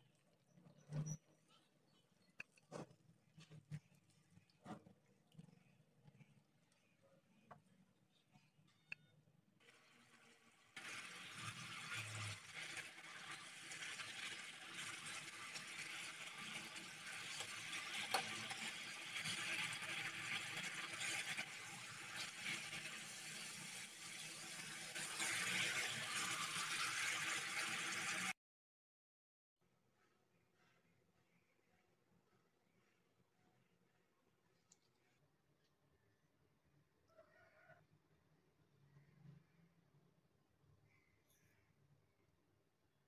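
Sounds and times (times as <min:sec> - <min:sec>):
spatula stirring in pan: 0:00.1 - 0:08.9, 0:09.7 - 0:28.3
sauce simmering and crackling: 0:09.7 - 0:28.3.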